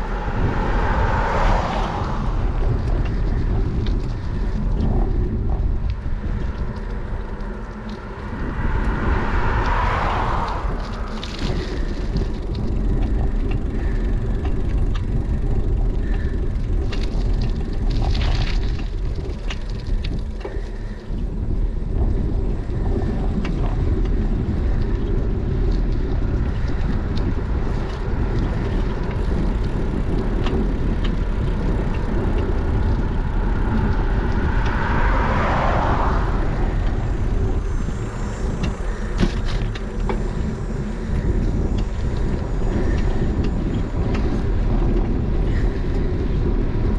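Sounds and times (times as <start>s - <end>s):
tyre and road noise: 0.0s - 46.9s
wind buffeting microphone: 0.0s - 46.9s
small clicks and rattles: 1.9s - 46.9s.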